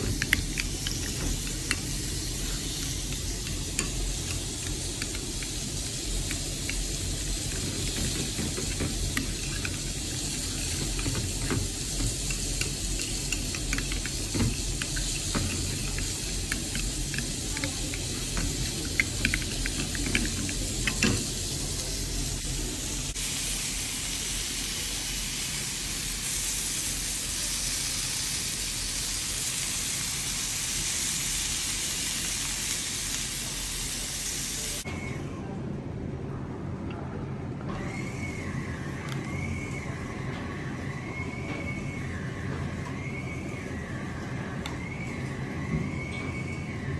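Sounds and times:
meat sizzling on grill pan: 0.0 - 34.8
spoon stirring in ceramic bowl: 7.9 - 21.2.

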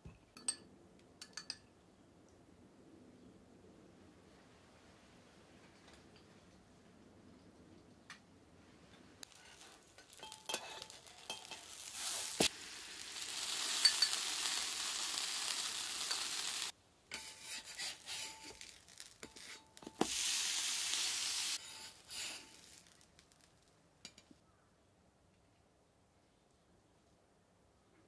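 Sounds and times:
cutlet sizzling on a griddle: 9.2 - 23.4
metal spatulas scraping a plate: 9.3 - 12.5, 17.1 - 19.7, 21.6 - 22.6.

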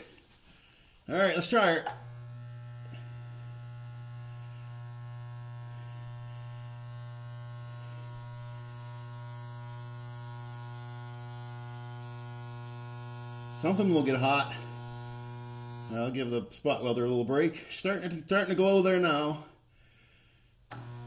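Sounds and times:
spot welder mains buzz: 1.4 - 16.4, 20.7 - 21.0.

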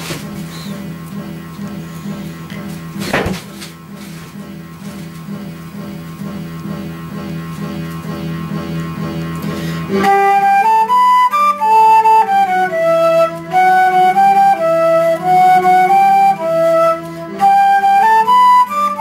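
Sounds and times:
flute playing held notes: 9.8 - 19.0.

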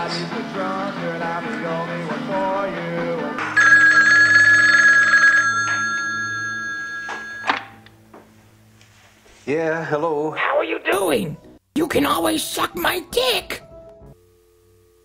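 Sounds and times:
music: 0.0 - 4.7, 7.1 - 15.0
telephone ringing: 3.4 - 7.8.

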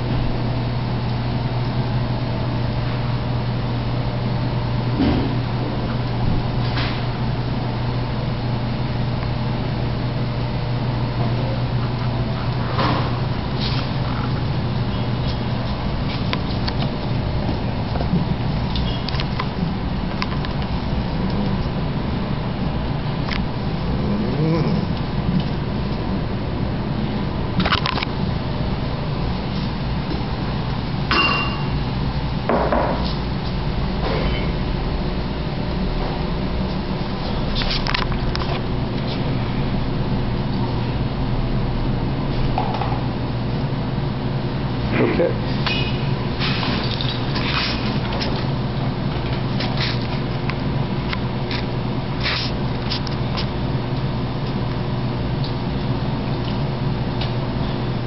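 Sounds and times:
low hum: 0.0 - 32.5.

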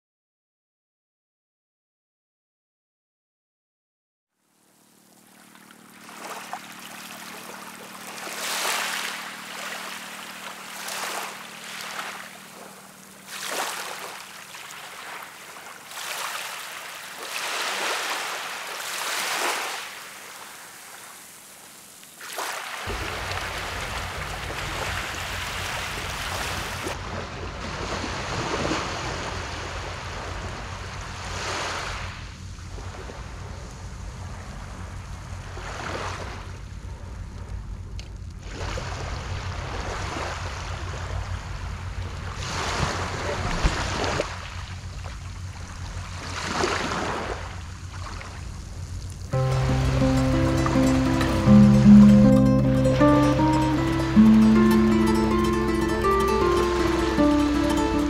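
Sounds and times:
sea waves breaking on a beach: 4.8 - 37.4, 38.4 - 58.0
rushing noise with deep rumble: 22.9 - 49.3.

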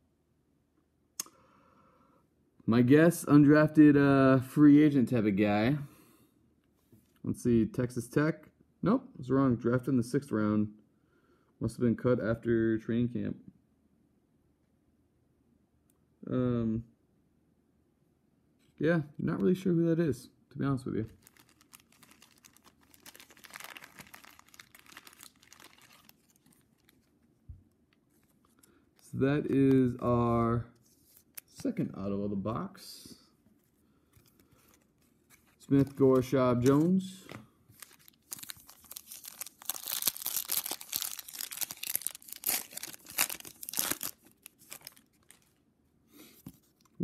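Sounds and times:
plastic sleeve crinkling: 21.0 - 31.8, 33.6 - 45.6.

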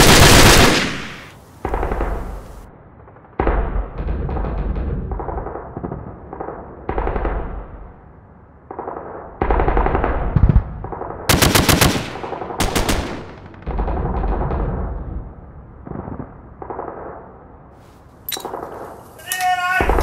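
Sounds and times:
automatic gunfire: 0.0 - 2.4, 9.6 - 14.4.

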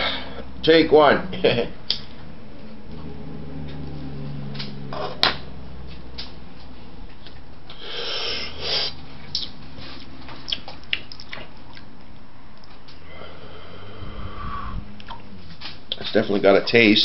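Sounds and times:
steady low hum: 0.0 - 17.0
breathy drawing and exhaling: 13.0 - 15.0.

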